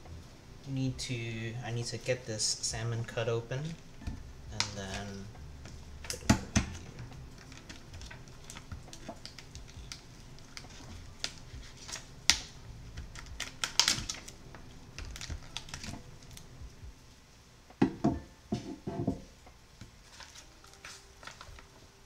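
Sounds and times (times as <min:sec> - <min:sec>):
package clicks and crinkles: 0:06.1 - 0:16.5, 0:20.0 - 0:21.7.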